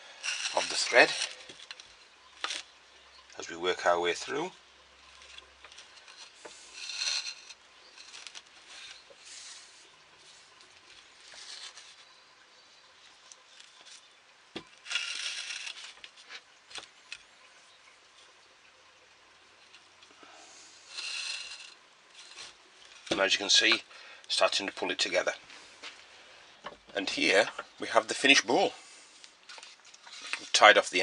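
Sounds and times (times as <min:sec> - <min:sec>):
twine swishing through wood: 0:00.0 - 0:02.6, 0:04.2 - 0:12.3, 0:14.8 - 0:16.9, 0:20.5 - 0:23.8.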